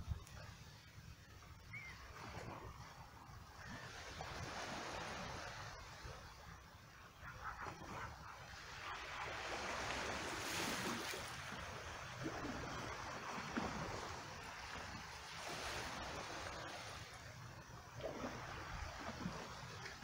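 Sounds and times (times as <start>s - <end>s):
small water splashes: 7.6s - 20.0s
small waves washing over rocks: 9.0s - 20.0s.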